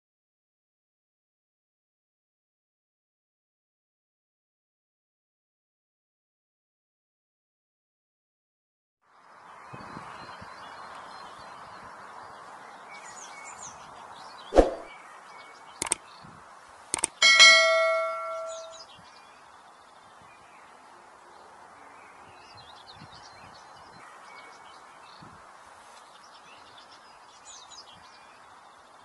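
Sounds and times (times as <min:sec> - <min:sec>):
faint bird chirps: 0:17.0 - 0:20.7
ringing metallic clang: 0:17.2 - 0:18.8.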